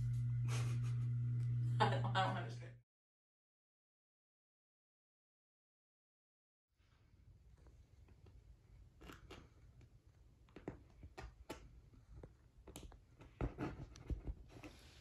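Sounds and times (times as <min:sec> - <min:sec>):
low steady hum: 0:00.0 - 0:02.8.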